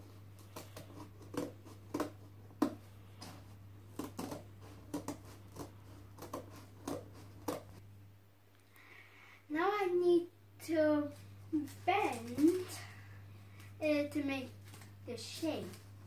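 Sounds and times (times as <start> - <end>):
scissors cutting cardboard: 0.4 - 7.8.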